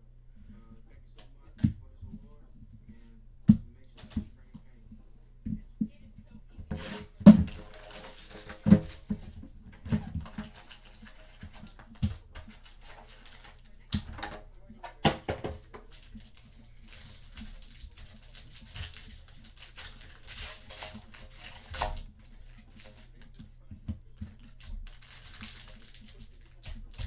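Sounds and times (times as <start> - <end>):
cards rustling: 6.7 - 27.0
cards knocking and tapping on table: 14.0 - 16.6.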